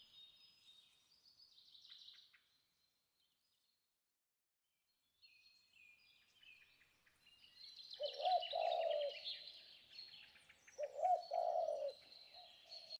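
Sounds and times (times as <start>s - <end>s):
birds chirping and trilling: 5.2s - 12.9s
lower bird call: 8.0s - 9.5s, 10.8s - 12.6s.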